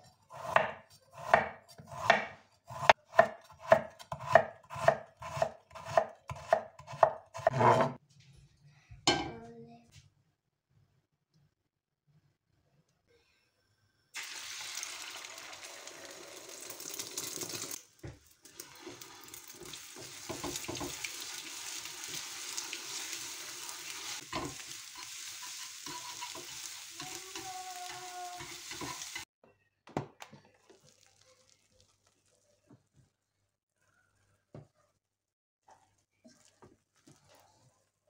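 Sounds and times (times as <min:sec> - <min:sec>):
eggs sizzling in a pan: 0:14.1 - 0:29.3, 0:30.6 - 0:32.8.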